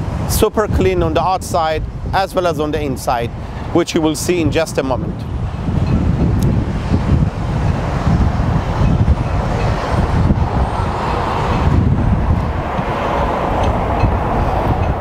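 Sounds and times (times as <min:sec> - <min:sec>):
road traffic rumble: 0:00.0 - 0:15.0
wind buffeting microphone: 0:00.0 - 0:15.0
passing vehicle: 0:05.0 - 0:15.0.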